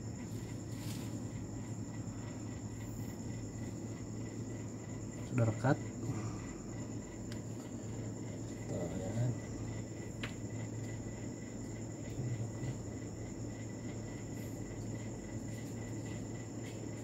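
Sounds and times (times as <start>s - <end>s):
crickets chirring: 0.0s - 17.0s
low steady hum: 0.0s - 17.0s.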